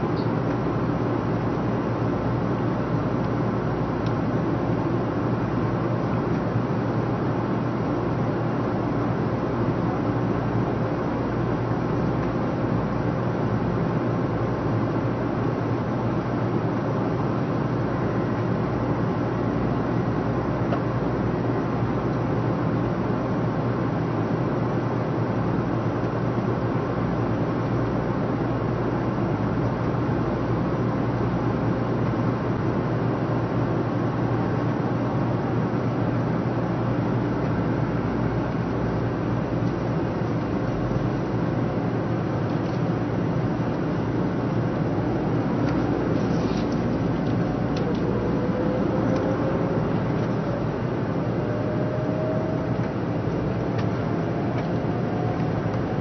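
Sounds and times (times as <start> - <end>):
train cabin hum and rushing: 0.0 - 56.0.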